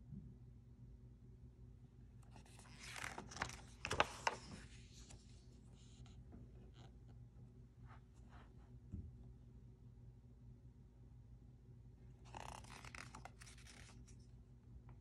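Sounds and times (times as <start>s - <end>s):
paper rustling: 2.4s - 6.1s, 12.3s - 14.2s.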